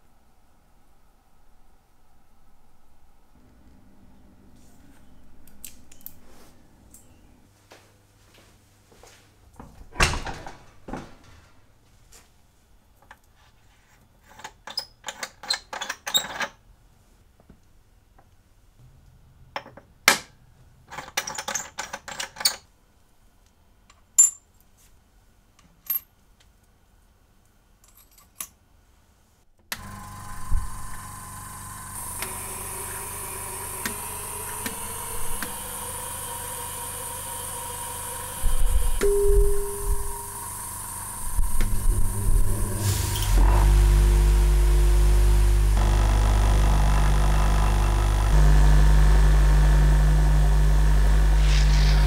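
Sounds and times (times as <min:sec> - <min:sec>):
machine hum with high hiss: 0:29.8 - 0:52.0.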